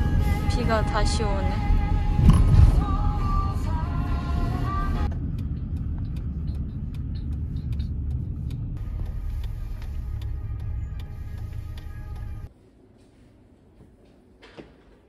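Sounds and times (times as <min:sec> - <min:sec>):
background music: 0:00.0 - 0:05.1, 0:08.8 - 0:12.5
car cabin road rumble: 0:00.0 - 0:12.5.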